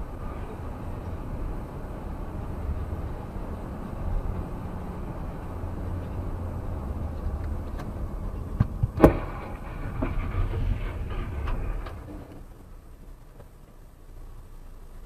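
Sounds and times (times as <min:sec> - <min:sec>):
car road and engine rumble: 0:00.0 - 0:15.0
small knocks: 0:07.4 - 0:09.3
clattering: 0:08.4 - 0:12.4
vehicle collision bang: 0:08.6 - 0:12.5.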